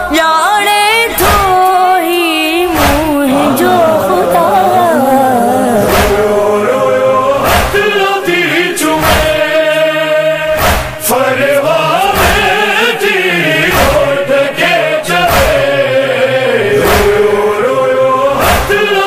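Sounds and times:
person chanting a lament: 0.0 - 19.0
backing voices: 0.9 - 9.4
heavy beat: 2.6 - 6.8, 7.4 - 7.9, 9.0 - 9.5, 10.6 - 11.1.

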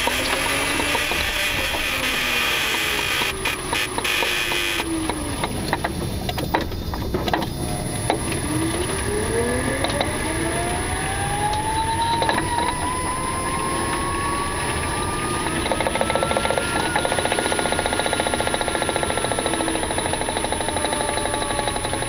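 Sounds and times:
rising electric whine: 0.0 - 5.4, 7.6 - 22.0
power steering buzzing: 0.0 - 22.0
fast regular knocking: 15.6 - 22.0.

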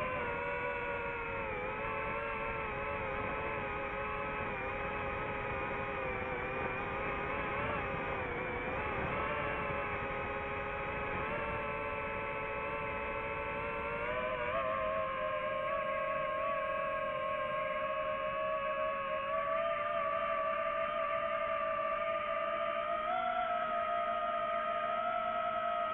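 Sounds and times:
drone motors whirring: 0.0 - 17.4.

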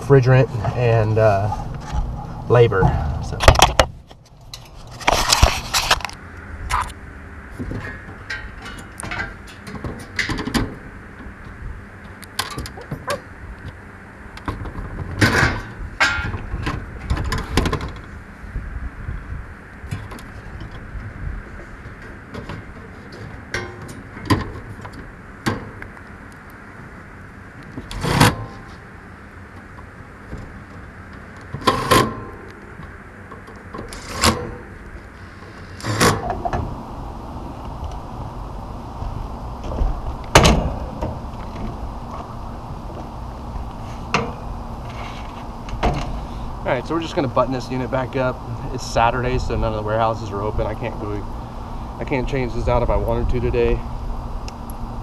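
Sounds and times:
low steady rumble: 0.0 - 55.0
metal clanks and scrapes: 0.3 - 7.0, 7.6 - 10.8, 14.5 - 18.0, 31.5 - 32.4.

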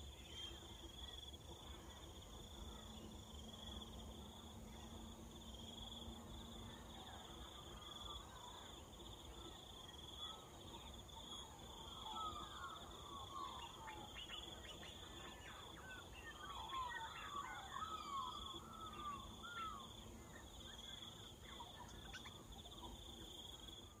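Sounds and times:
birds chirping: 10.0 - 24.0.

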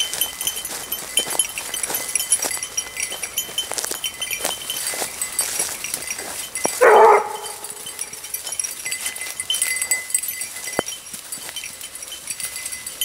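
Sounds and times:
hound baying: 6.2 - 8.2.

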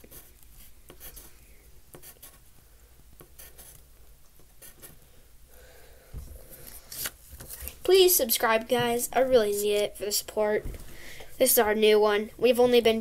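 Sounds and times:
pencil scratching on paper: 0.0 - 2.4, 3.2 - 3.8, 4.4 - 5.0.

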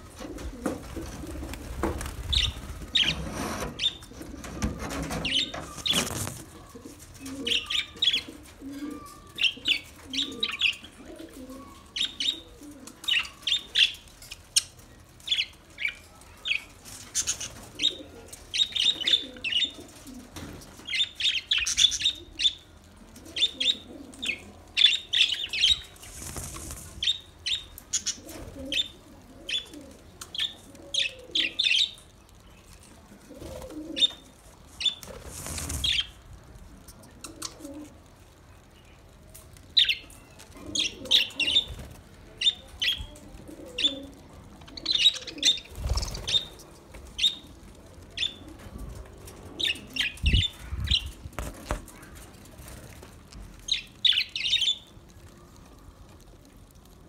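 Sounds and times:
wing flapping: 0.2 - 6.7, 25.7 - 27.2, 34.9 - 36.4, 45.6 - 46.6.

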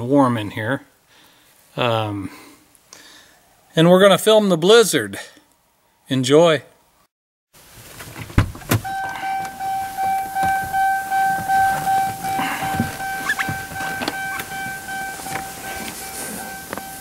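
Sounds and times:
clunks: 8.0 - 17.0
car warning chime: 8.8 - 17.0.

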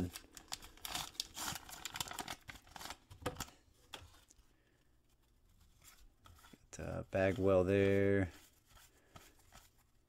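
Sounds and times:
wrapper being torn and crinkled: 0.0 - 3.0.

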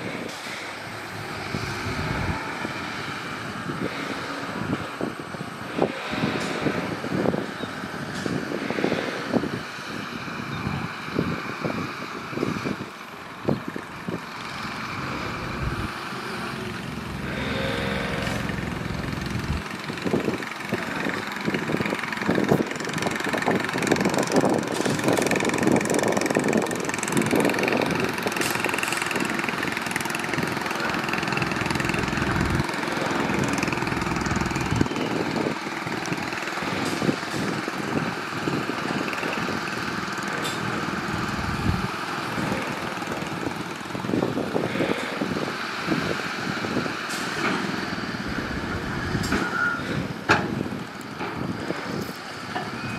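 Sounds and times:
heavy machinery diesel engines: 0.0 - 52.9
clanks and knocks: 50.2 - 52.8.

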